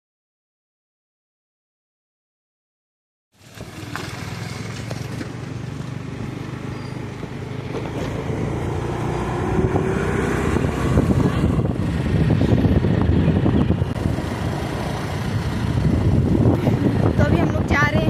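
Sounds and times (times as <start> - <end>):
motorcycle engine: 3.4 - 18.0
wind rushing over microphone: 7.6 - 18.0.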